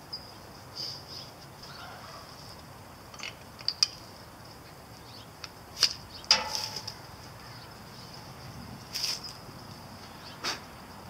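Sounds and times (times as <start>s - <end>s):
metallic clank: 6.3s - 7.0s.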